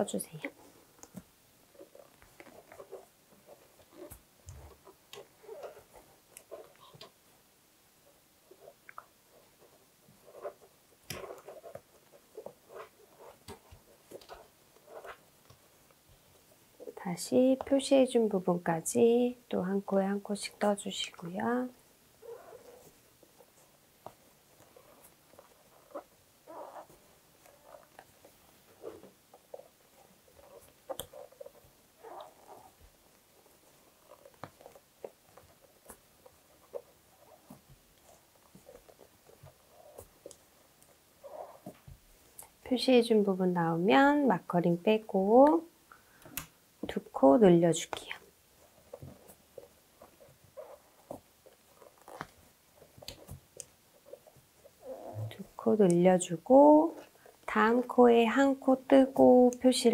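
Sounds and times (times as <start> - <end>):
yarn scraping on yarn: 8.5 - 15.7, 24.4 - 41.8, 47.0 - 59.9.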